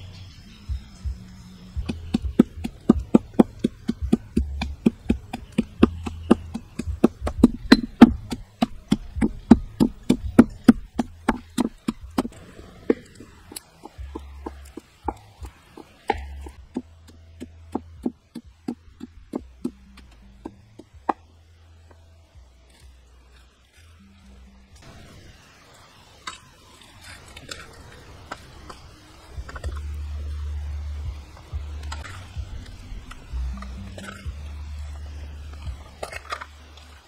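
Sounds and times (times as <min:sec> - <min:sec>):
stone pestle pounding in mortar: 0:01.8 - 0:21.2.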